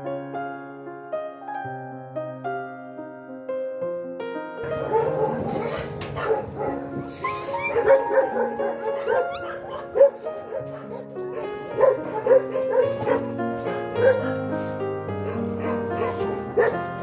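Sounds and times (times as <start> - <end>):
soft background music: 4.6 - 17.0
puppies squealing and whimpering: 4.7 - 13.3.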